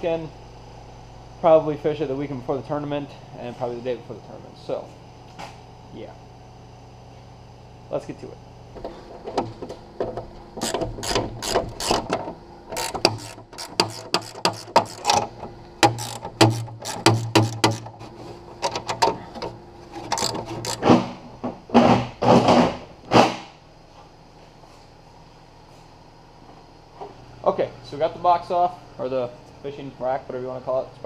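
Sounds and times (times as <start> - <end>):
ratchet wrench clicking: 10.6 - 12.1, 12.7 - 15.2, 15.8 - 17.9, 20.1 - 20.9
metal scraping: 12.7 - 15.3, 19.9 - 21.2.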